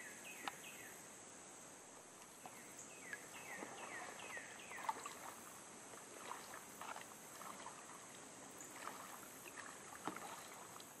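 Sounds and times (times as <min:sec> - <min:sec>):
insects droning: 0:00.0 - 0:11.0
paddle splashing in water: 0:02.2 - 0:11.0
water dripping: 0:02.2 - 0:11.0.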